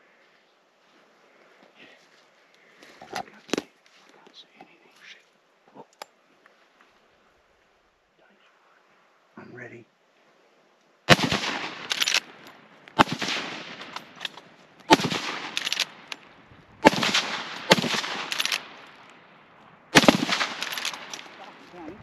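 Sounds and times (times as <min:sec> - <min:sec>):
faint sharp cracks: 0:10.8 - 0:21.8
rifle shots: 0:11.1 - 0:19.0, 0:19.9 - 0:21.6.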